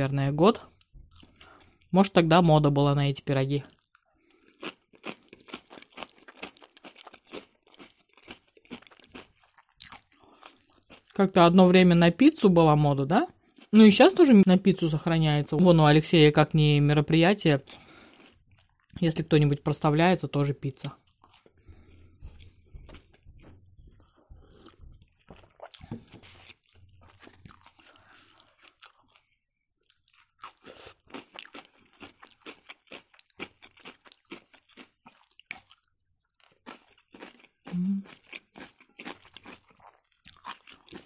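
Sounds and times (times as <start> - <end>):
chewing crunchy food: 0.6 - 1.9, 3.6 - 11.2, 13.3 - 13.8, 17.6 - 19.0, 20.8 - 41.0.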